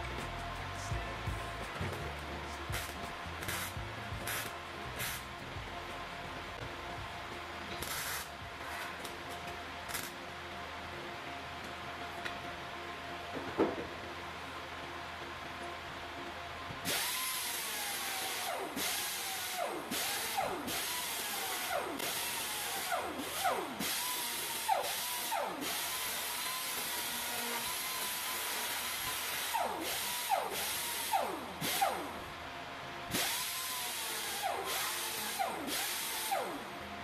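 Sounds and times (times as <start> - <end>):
air grinder whining: 0.0 - 10.2, 16.8 - 32.4, 33.1 - 37.0
grinder biting into steel: 2.7 - 5.4, 7.7 - 9.1, 33.1 - 36.6.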